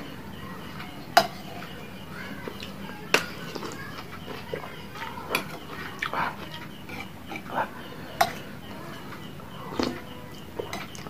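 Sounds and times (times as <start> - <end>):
slurping and chewing: 2.4 - 11.0.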